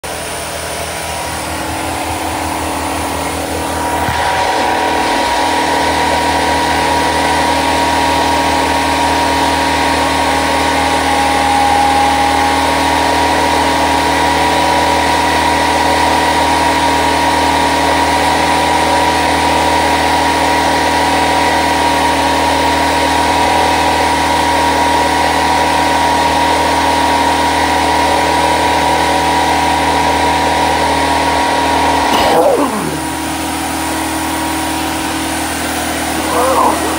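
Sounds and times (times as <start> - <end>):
machine humming: 1.0 - 19.2, 32.1 - 36.9.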